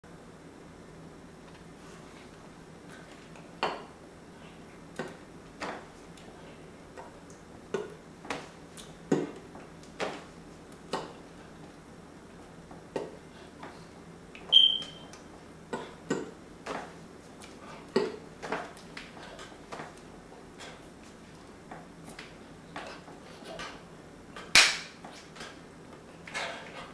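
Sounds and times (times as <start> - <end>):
short high-pitched chirp: 14.5 - 15.0
hands tapping and slapping: 24.5 - 25.2.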